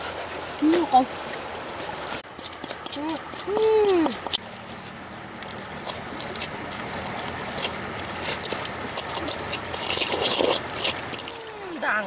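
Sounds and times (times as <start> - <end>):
scraping rustle: 1.2 - 11.5
pestle pounding chilies: 2.3 - 4.4.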